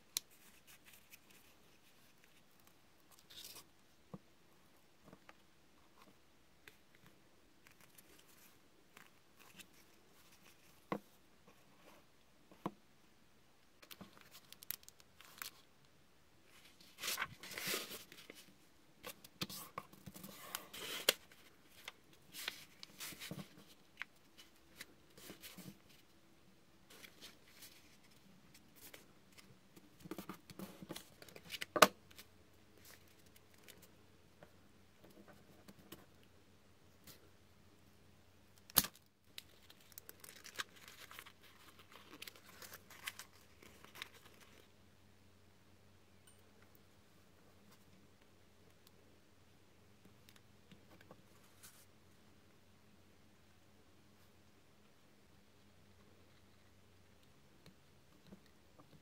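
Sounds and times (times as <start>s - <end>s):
paper rustling and crinkling: 16.5s - 26.0s, 38.8s - 44.7s.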